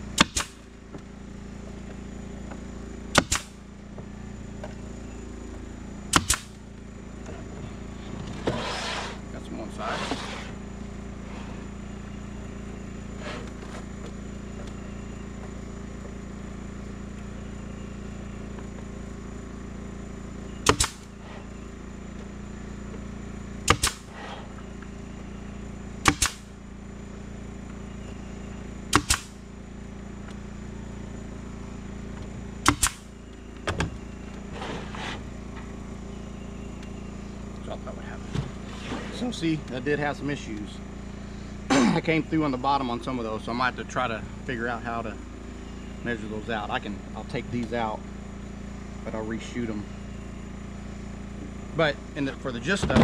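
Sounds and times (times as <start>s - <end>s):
steady low hum: 0.0s - 53.0s
nail gun shots into boards: 0.2s - 0.6s, 3.1s - 3.6s, 6.1s - 6.6s, 20.6s - 21.1s, 23.6s - 24.2s, 26.0s - 26.5s, 28.9s - 29.4s, 32.6s - 33.1s.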